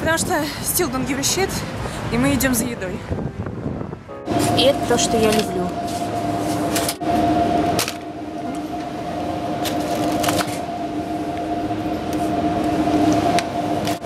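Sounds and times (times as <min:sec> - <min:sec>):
refrigerated shelves humming: 0:04.3 - 0:14.0.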